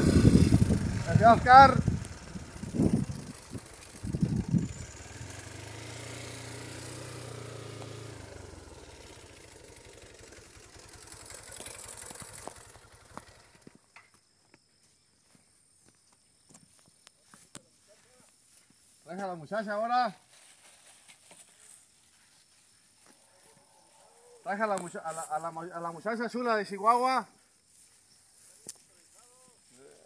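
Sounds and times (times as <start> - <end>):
small motorcycle engine idling: 0.0 - 14.2
footsteps on dirt track: 11.3 - 19.4, 20.1 - 26.0.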